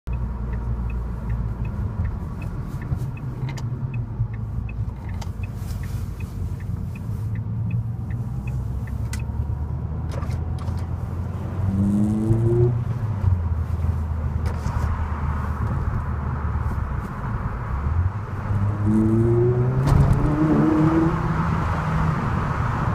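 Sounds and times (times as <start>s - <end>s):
car engine rumbling at low revs: 0.0s - 22.9s
turn-signal relay ticking: 0.1s - 9.4s.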